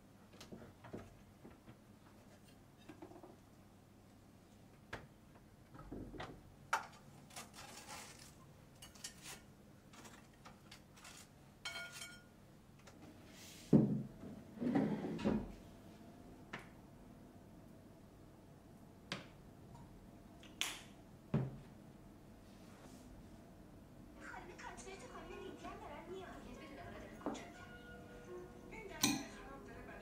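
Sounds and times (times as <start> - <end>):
ceramic clink: 11.6 - 12.3.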